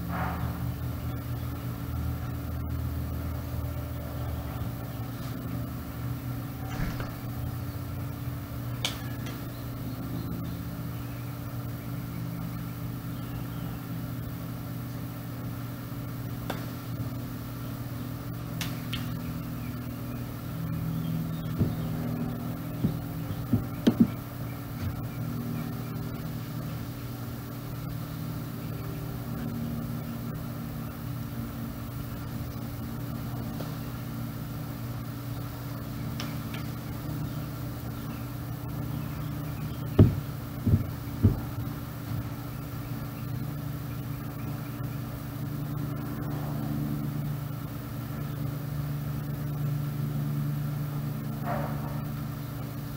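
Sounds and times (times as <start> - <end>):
low mechanical hum: 0.0 - 52.9
sharp knocks: 40.0 - 41.6.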